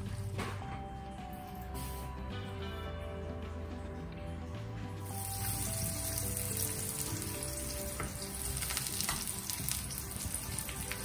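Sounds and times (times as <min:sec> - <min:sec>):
soft background music: 0:00.0 - 0:11.0
eggplant sizzling in oil: 0:05.0 - 0:11.0.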